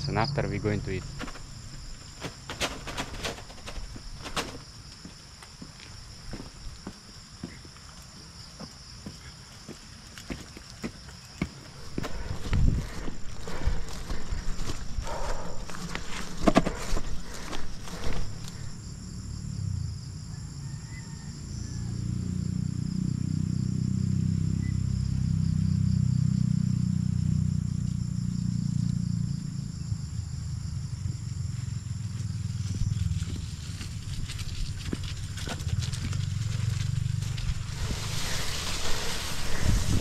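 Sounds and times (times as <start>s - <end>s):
insects buzzing in grass: 0.0s - 20.6s, 26.8s - 40.0s
wheelbarrow rattling over grass: 0.6s - 4.9s, 11.6s - 18.8s, 33.1s - 40.0s
low rumble: 11.7s - 18.8s.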